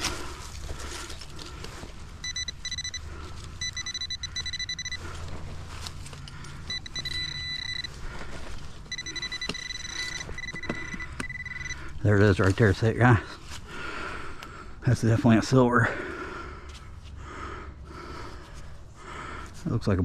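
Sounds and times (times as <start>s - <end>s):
pinpointer buzzing beep: 2.2s - 5.1s, 6.7s - 8.0s, 8.9s - 11.8s.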